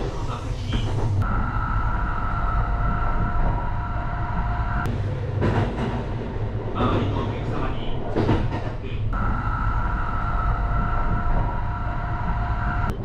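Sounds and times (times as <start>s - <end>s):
electric train high whine: 0.0s - 6.6s, 9.1s - 13.0s
train low rumble: 0.0s - 13.0s.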